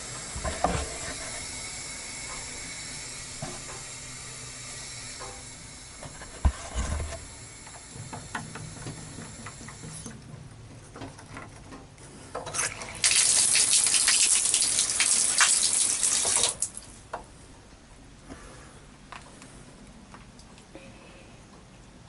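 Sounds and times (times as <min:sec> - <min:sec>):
water gushing from pipework: 0:12.5 - 0:16.9.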